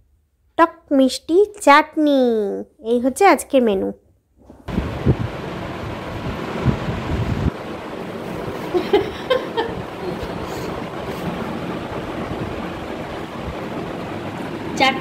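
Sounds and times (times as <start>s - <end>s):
steady rushing noise: 4.7s - 15.0s.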